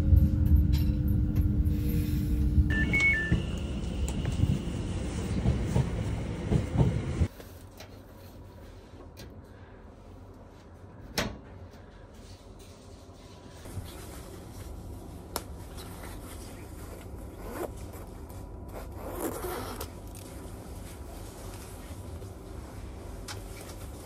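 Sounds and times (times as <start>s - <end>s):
steady low hum: 0.0s - 24.0s
zipper pulled open: 17.4s - 17.9s, 18.7s - 20.2s.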